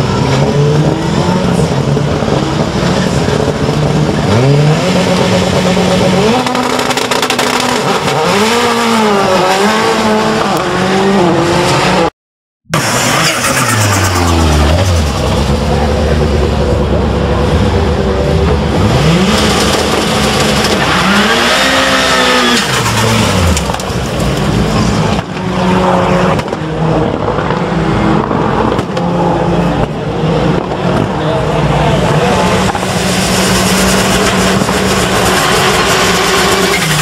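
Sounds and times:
race car engines revving: 0.0 - 12.1, 12.7 - 37.0.

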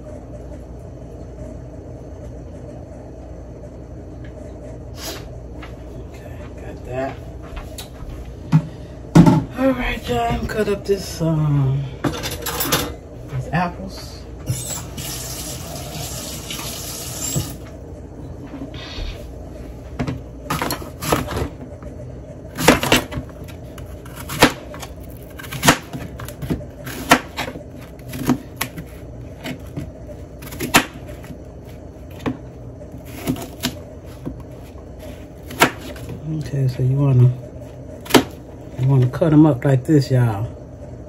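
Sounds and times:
tap water running: 14.4 - 17.7
knife chopping on cutting board: 24.0 - 31.2, 33.1 - 34.4, 35.0 - 36.1, 38.0 - 38.4.

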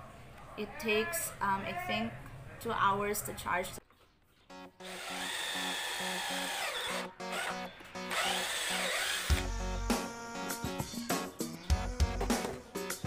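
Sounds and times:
cordless drill whining: 4.8 - 9.5.

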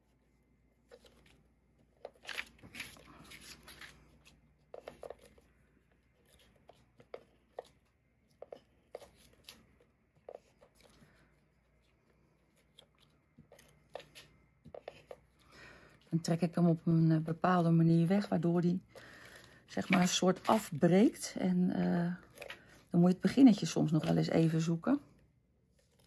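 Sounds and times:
paper crinkling: 0.8 - 16.3.

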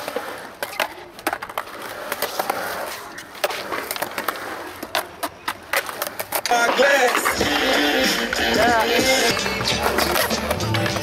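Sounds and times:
skateboard wheels rolling on concrete: 0.0 - 11.0.

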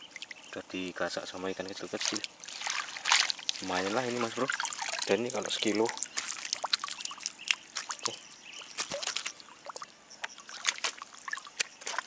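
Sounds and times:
water splashing and dripping: 0.0 - 0.4, 1.6 - 12.0.

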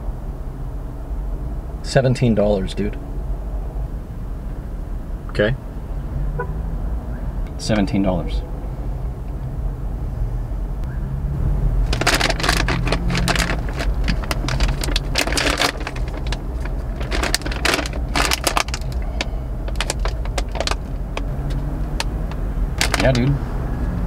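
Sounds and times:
low steady hum: 0.0 - 24.0
plastic bag crinkling: 11.8 - 23.2.

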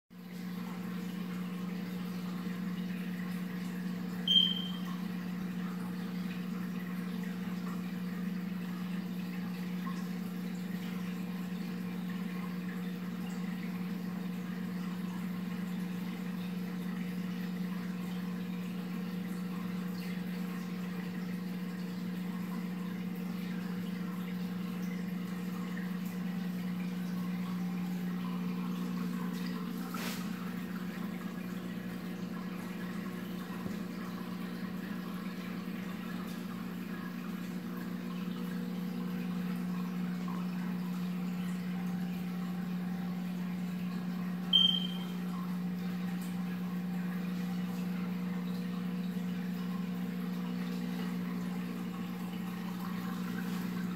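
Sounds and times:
filter humming and hissing: 0.2 - 53.9
short high-pitched beep: 4.3 - 4.9, 44.5 - 45.1.

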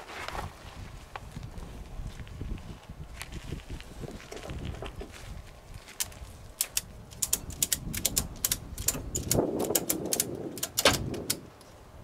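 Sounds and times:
ratchet clicking: 6.6 - 11.4.

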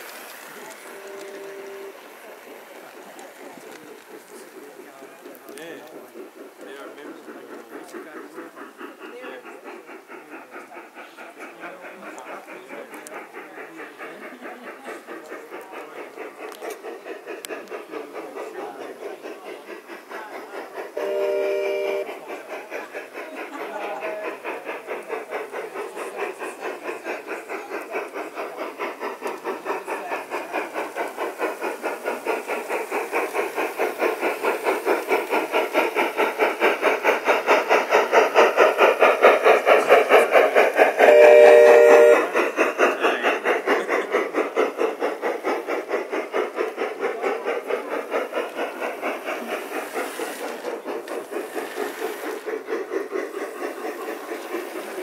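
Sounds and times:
model steam locomotive chuffing: 0.0 - 55.0
steam whistle blast: 0.9 - 2.0, 21.0 - 22.1, 41.0 - 42.3.

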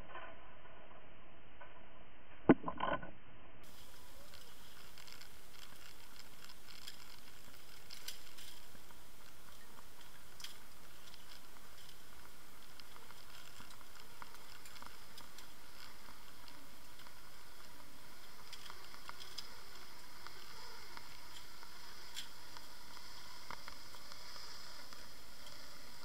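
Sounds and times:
faint clicks and ticks: 2.5 - 26.0.

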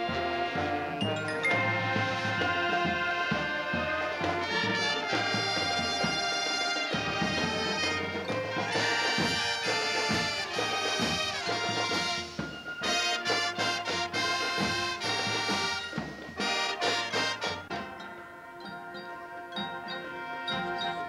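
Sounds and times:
marching band playing: 0.0 - 21.0.

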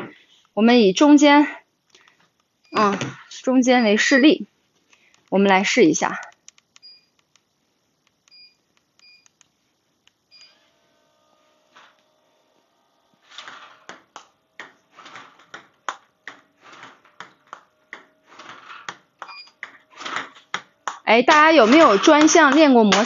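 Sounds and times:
short electronic beeps: 6.8 - 7.2.

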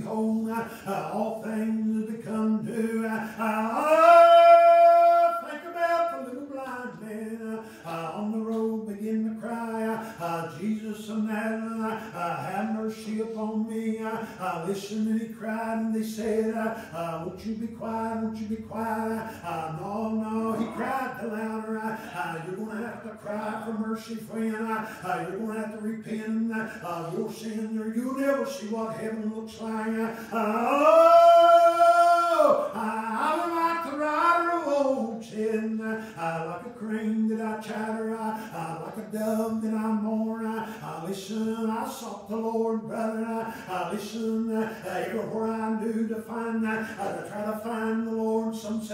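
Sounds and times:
man chanting: 0.0 - 48.9.

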